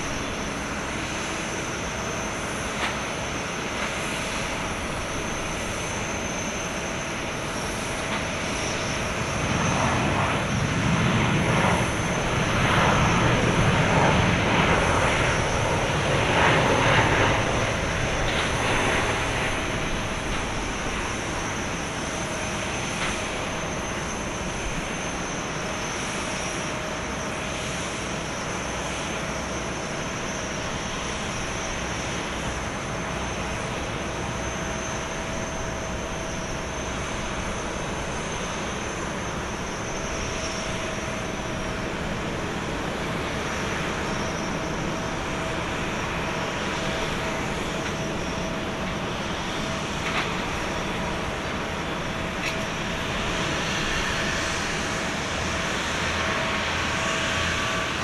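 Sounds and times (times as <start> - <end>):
jet turbine whine and rumble: 0.0 - 58.0.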